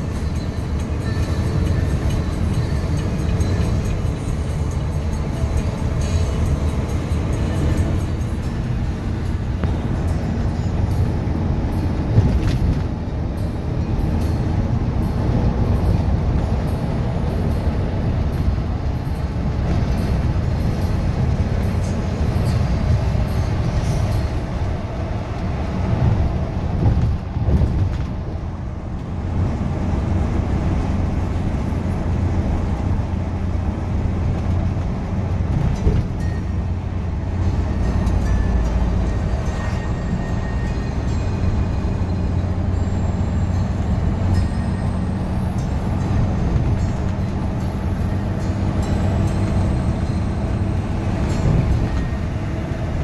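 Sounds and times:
coach engine and tyres rumbling: 0.0 - 53.0.

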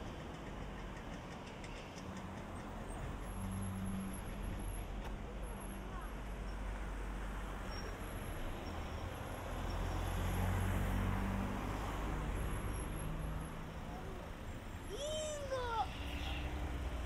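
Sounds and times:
road noise: 0.0 - 17.0
vehicle engine hum passing: 6.8 - 17.0.

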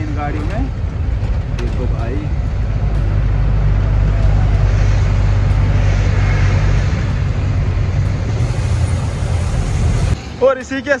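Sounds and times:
diesel truck engine drone: 0.0 - 11.0
rain and tyres on wet road: 0.0 - 11.0.

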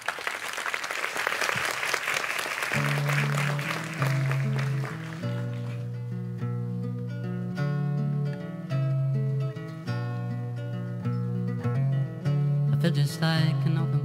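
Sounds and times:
audience applauding: 0.0 - 5.9
solo acoustic guitar: 2.8 - 14.0.

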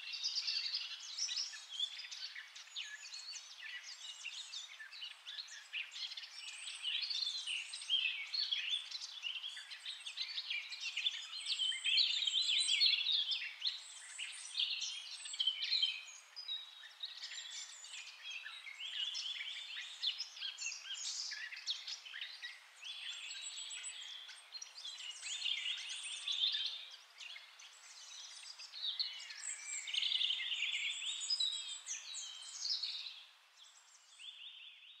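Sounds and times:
songbirds chirping and trilling: 0.0 - 35.0.

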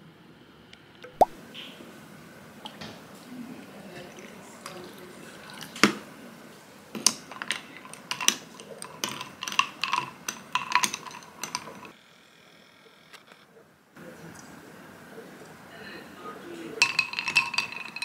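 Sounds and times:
coffee pouring into glass: 3.9 - 6.0, 7.0 - 12.0, 16.6 - 18.0
metal stirrer clinking glass: 7.0 - 11.9, 16.8 - 18.0.

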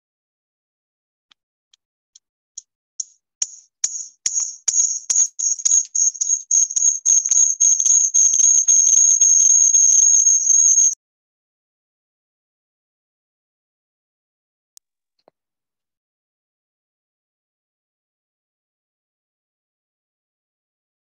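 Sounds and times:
high bell-like jingling: 3.9 - 11.0.

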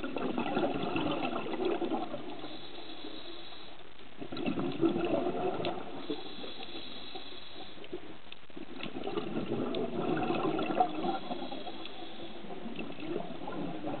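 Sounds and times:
diver's exhaled bubbles underwater: 0.0 - 2.6, 4.2 - 6.5, 8.6 - 11.8, 12.4 - 14.0
faint reef clicks: 1.6 - 10.1, 11.1 - 13.2.

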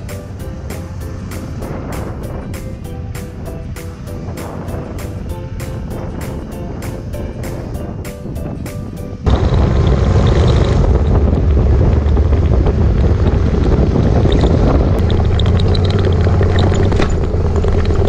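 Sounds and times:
road noise: 0.0 - 18.0
wind buffeting microphone: 0.0 - 18.0
motorcycle engine: 9.2 - 18.0.

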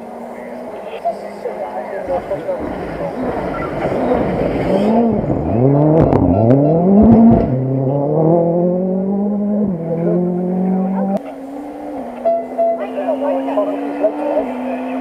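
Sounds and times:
rally car engine revving: 0.0 - 15.0
engine cracks: 2.0 - 7.7.

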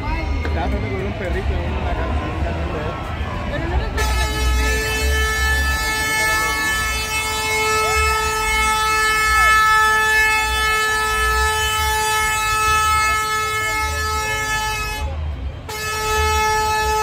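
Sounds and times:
crowd shouting: 0.0 - 17.0
vehicle horn long blast: 3.9 - 17.0.

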